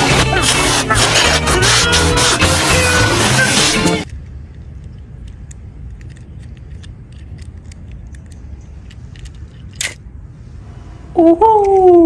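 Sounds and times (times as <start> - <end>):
metal toy cars clinking: 4.0 - 10.1.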